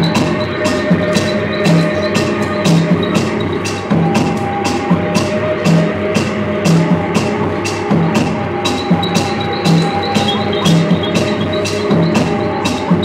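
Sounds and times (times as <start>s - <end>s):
percussion beat: 0.0s - 13.0s
sustained melodic tones: 0.0s - 13.0s.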